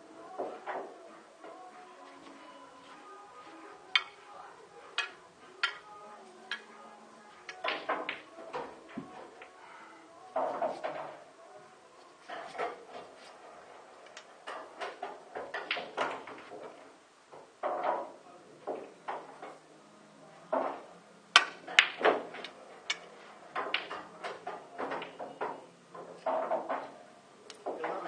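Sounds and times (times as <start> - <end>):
cue striking ball: 7.5 - 8.7, 21.4 - 23.0.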